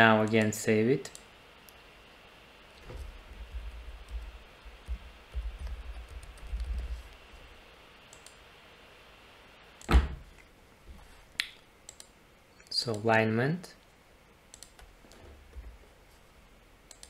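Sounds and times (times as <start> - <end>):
typing on a keyboard: 5.6 - 6.9.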